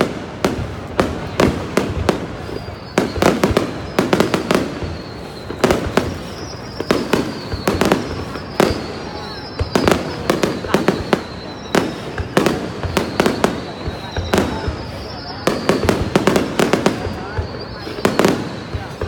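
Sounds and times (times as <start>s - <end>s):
descending firework whistle: 0.0s - 19.0s
fireworks bangs: 0.0s - 19.0s.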